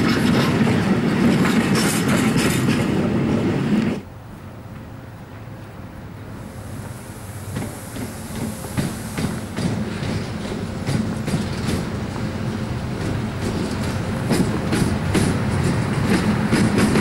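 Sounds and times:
wheels clicking over rail joints: 0:00.0 - 0:03.1, 0:06.8 - 0:17.0
locomotive rumble: 0:00.0 - 0:17.0.

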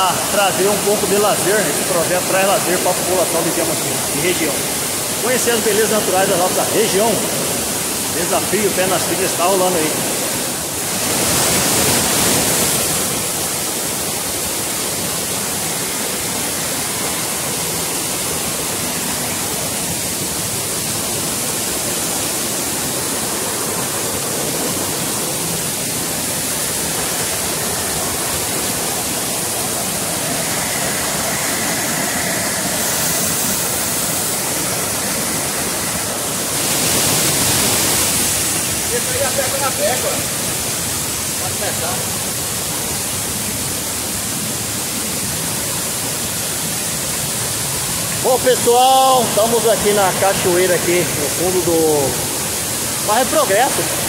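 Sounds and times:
waterfall rushing: 0:00.0 - 0:54.0.

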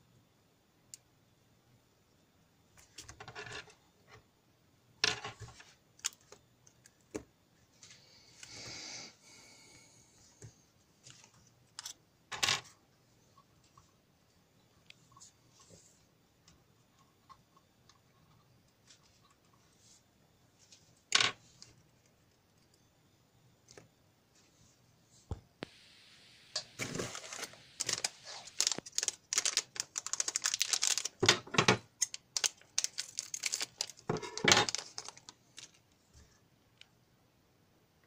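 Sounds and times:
clicks and rattles of small parts: 0:27.8 - 0:35.9.

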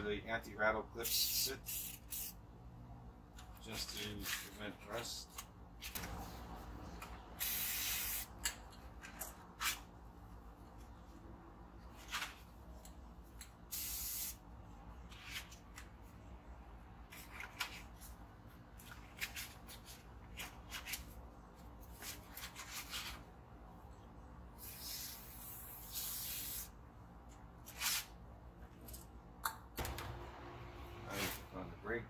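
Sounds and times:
aerosol spray can hissing: 0:07.4 - 0:08.3, 0:13.7 - 0:14.4, 0:24.6 - 0:26.7.

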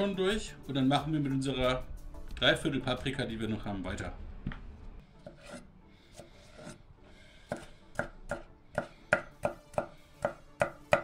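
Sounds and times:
knife chopping on cutting board: 0:07.5 - 0:11.0.

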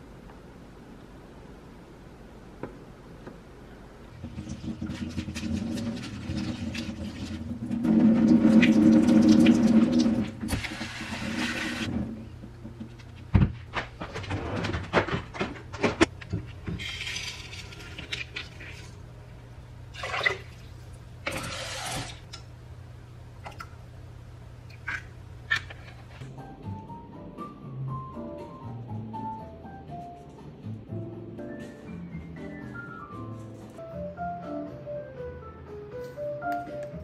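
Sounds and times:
low steady hum: 0:00.0 - 0:27.9
tap water running and splashing: 0:04.2 - 0:11.9, 0:19.9 - 0:22.4.

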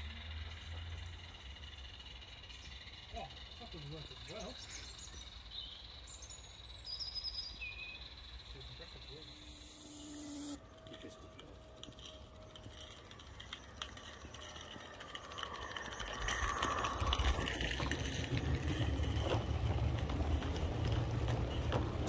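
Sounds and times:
model train wheels clicking: 0:00.0 - 0:22.0
low rumble: 0:10.7 - 0:22.0.

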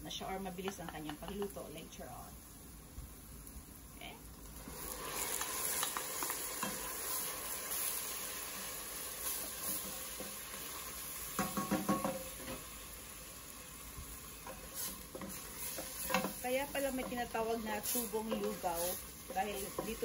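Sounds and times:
rice sizzling in hot oil: 0:00.0 - 0:20.0
wooden spoon scraping pot: 0:14.4 - 0:20.0.

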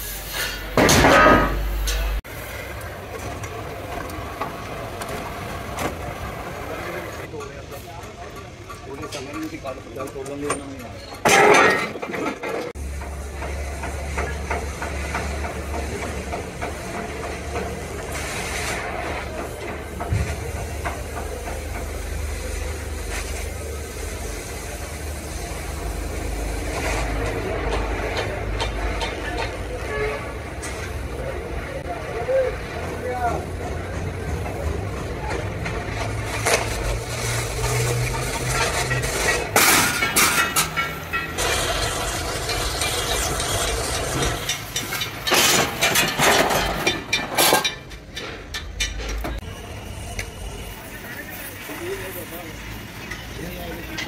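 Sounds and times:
gas cutting torch hissing: 0:00.0 - 0:00.8, 0:16.4 - 0:27.3
cutting torch hissing: 0:00.0 - 0:07.9, 0:13.1 - 0:28.1, 0:40.8 - 0:45.0
metal clattering and ringing: 0:38.1 - 0:49.4.

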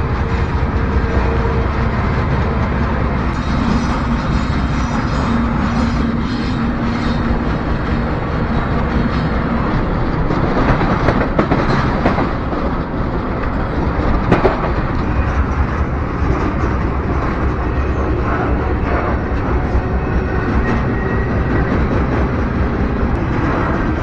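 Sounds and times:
train wheels rumbling on rail: 0:00.0 - 0:24.0
sharp clanks and clacks: 0:08.7 - 0:17.6.

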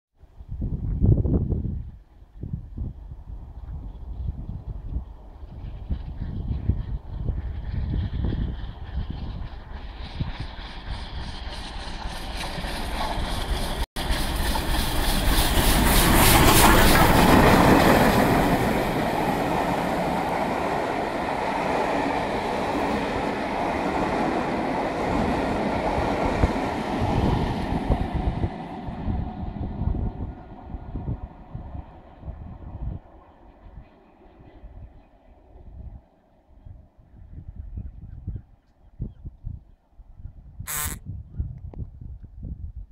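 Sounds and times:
steam locomotive passing: 0:03.4 - 0:36.5
train wheels clicking on rails: 0:07.5 - 0:28.0.

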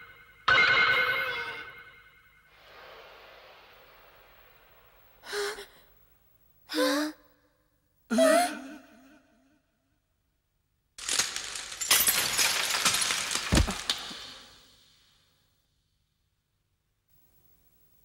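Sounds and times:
faint hiss: 0:02.4 - 0:06.7.

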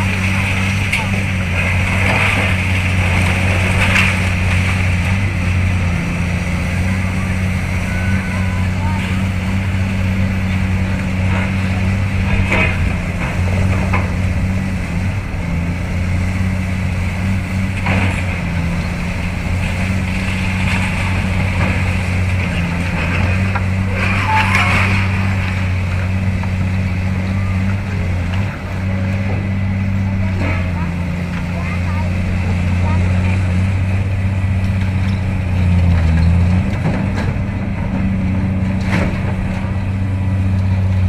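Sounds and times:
excavator diesel engines droning: 0:00.0 - 0:41.0
concrete rubble clattering: 0:00.1 - 0:05.4, 0:19.6 - 0:26.2.

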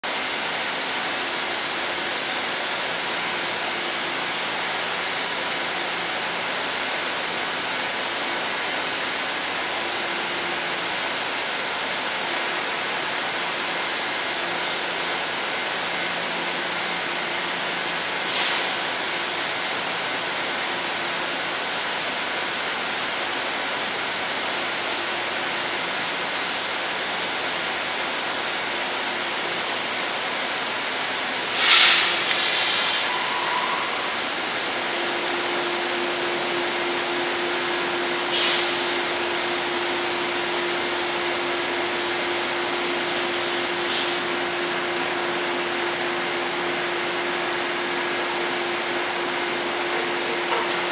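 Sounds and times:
train equipment hissing: 0:18.1 - 0:19.5, 0:29.1 - 0:44.4
short sharp hiss: 0:31.5 - 0:34.0.

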